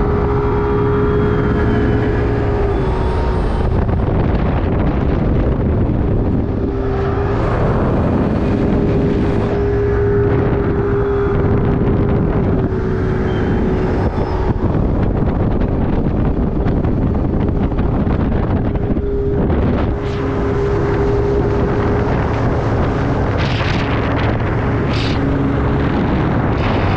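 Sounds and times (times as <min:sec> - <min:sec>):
outboard motor running fast: 0:00.0 - 0:26.9
wind buffeting microphone: 0:00.0 - 0:26.9.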